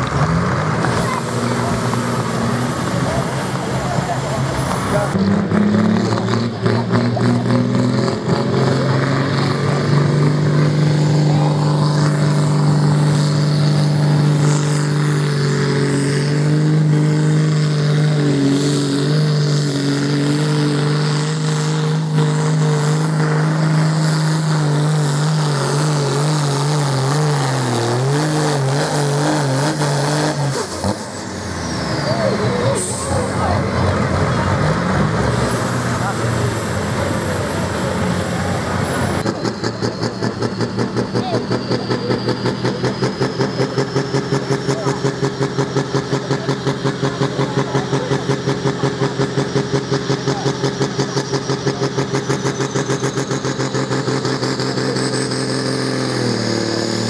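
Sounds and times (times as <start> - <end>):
tractor engine at high revs: 0.0 - 57.0.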